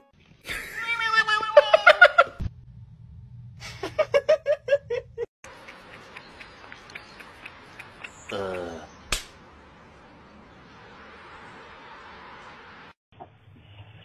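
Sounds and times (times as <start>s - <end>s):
low hum: 2.4s - 5.2s
small ticks: 5.5s - 8.7s.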